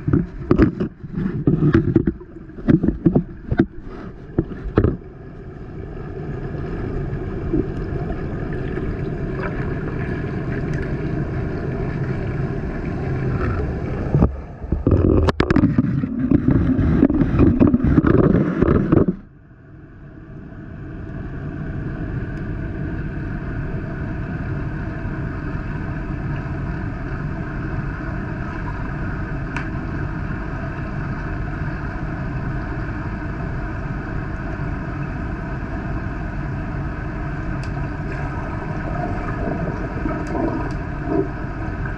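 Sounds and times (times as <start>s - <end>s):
camera rumbling and knocks underwater: 0.0s - 5.6s, 6.6s - 19.4s, 37.8s - 41.9s
underwater steady hum: 0.0s - 41.9s.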